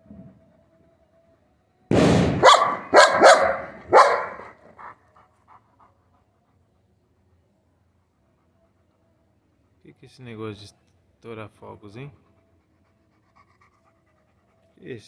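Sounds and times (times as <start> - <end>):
large dog barking: 2.4 - 5.0.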